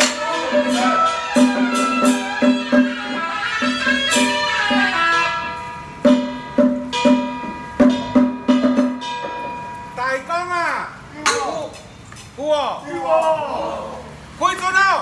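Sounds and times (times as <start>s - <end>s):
bright cymbal crash: 0.0s - 9.6s
high held tone: 0.0s - 11.7s.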